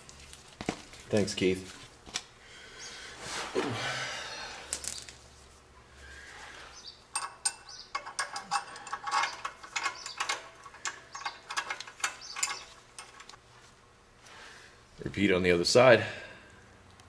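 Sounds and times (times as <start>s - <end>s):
light metallic clicks and rattles: 7.1s - 13.4s.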